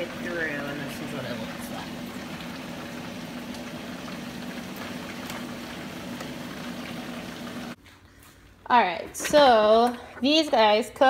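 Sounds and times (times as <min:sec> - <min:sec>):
food dehydrator fan whirring: 0:00.0 - 0:07.8.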